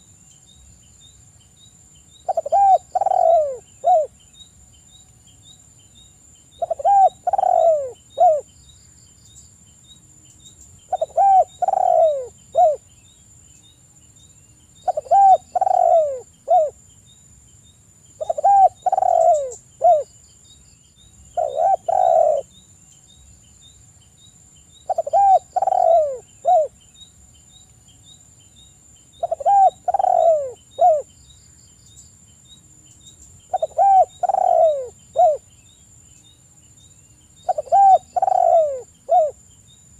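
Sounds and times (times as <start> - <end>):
dove cooing: 2.3 - 4.1, 6.6 - 8.5, 10.9 - 12.8, 14.8 - 16.8, 18.2 - 20.1, 21.4 - 22.5, 24.9 - 26.7, 29.2 - 31.1, 33.5 - 35.5, 37.4 - 39.4.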